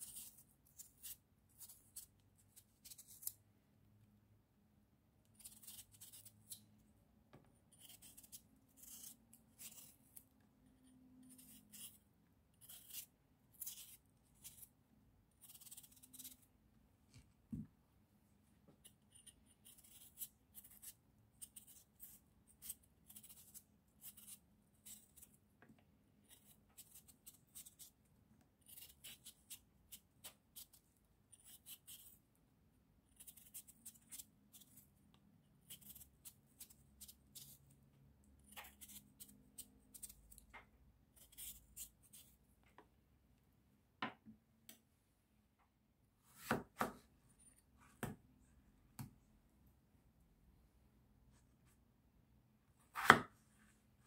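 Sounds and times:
knife scraping potato peel: 0.0s - 3.5s, 5.2s - 6.8s, 7.7s - 16.5s, 18.8s - 25.4s, 26.2s - 28.0s, 28.6s - 32.2s, 33.1s - 35.0s, 35.6s - 40.4s, 41.1s - 42.4s, 52.9s - 53.3s.

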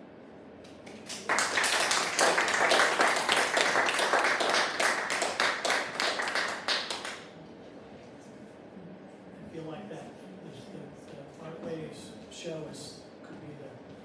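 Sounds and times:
audience applauding: 0.9s - 7.3s.

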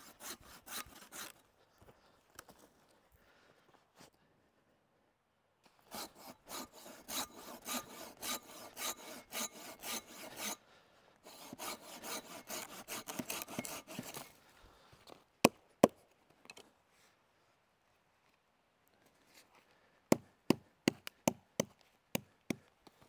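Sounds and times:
pull saw rasping through wood: 0.0s - 1.4s, 5.9s - 10.6s, 11.2s - 14.3s.

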